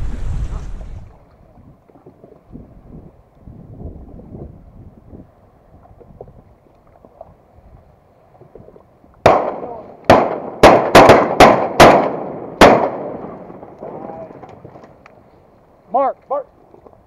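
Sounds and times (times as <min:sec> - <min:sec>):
shotgun shots echoing: 0:09.2 - 0:14.0.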